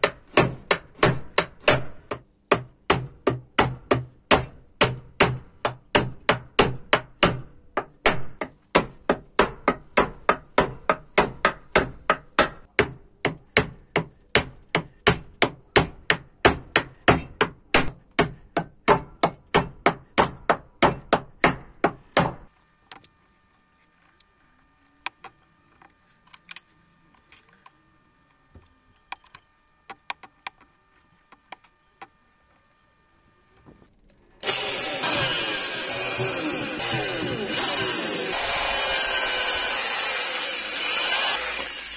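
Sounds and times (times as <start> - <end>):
hammer driving nails into wood: 0.0 - 22.5.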